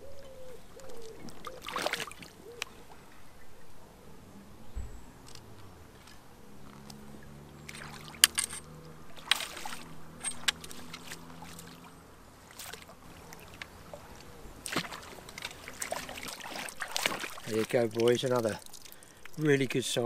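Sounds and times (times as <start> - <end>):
fish splashing in water: 0.8 - 3.0, 6.9 - 19.6.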